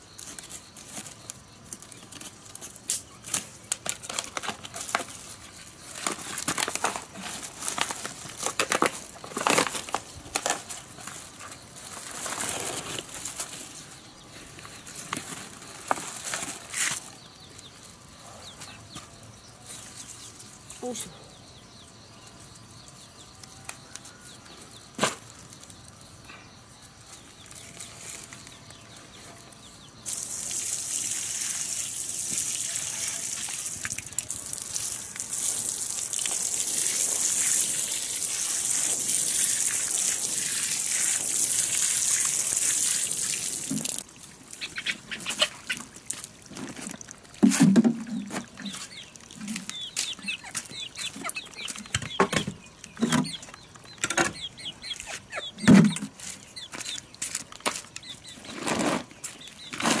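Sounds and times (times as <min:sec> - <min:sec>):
water spraying from watering can: 0:30.0 - 0:44.7
chickens clucking: 0:44.5 - 0:46.0, 0:47.4 - 0:57.2.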